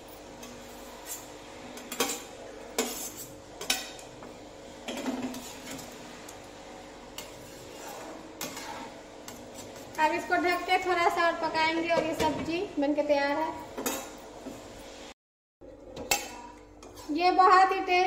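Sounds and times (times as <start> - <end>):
metal spoon scraping pan: 1.0 - 4.0, 7.1 - 10.0.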